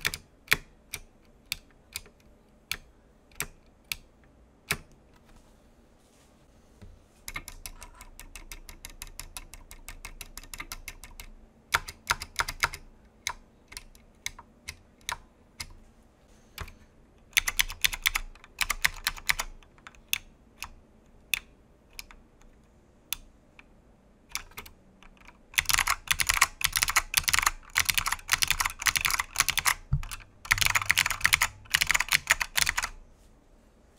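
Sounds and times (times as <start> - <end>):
mechanical keyboard typing: 0.0 - 4.1, 7.3 - 15.8, 16.6 - 22.2, 24.3 - 33.0.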